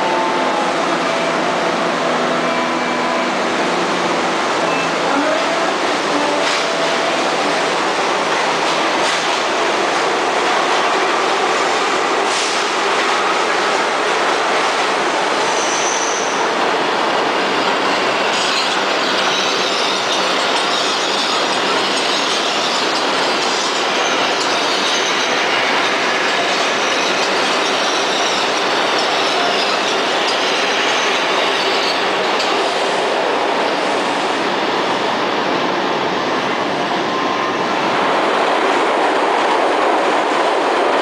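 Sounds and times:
high wheel squeal: 0:15.4 - 0:16.4, 0:18.2 - 0:32.5
steel wheels rolling on rails: 0:17.2 - 0:33.9.

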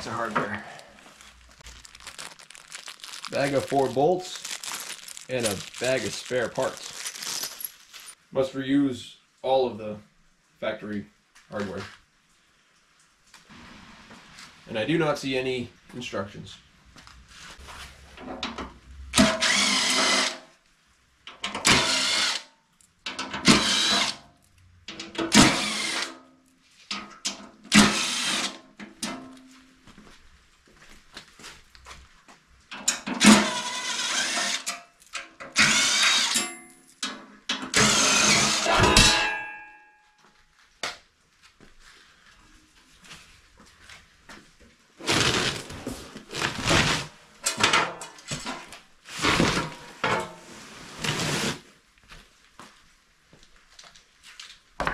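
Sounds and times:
cordless driver bursts: 0:19.2 - 0:20.4, 0:25.4 - 0:26.1, 0:27.8 - 0:28.5.

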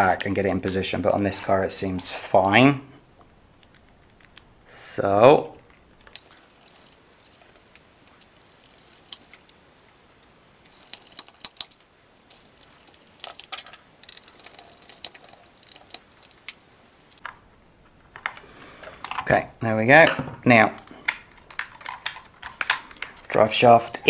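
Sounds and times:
small parts clicking and rattling: 0:05.6 - 0:17.4, 0:20.8 - 0:23.4.

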